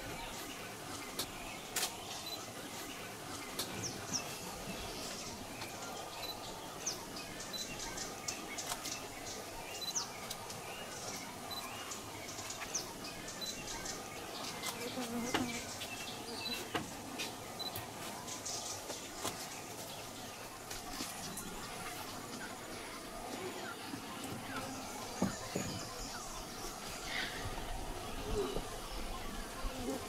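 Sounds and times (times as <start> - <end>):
birds chirping and whistling: 24.4 - 27.7.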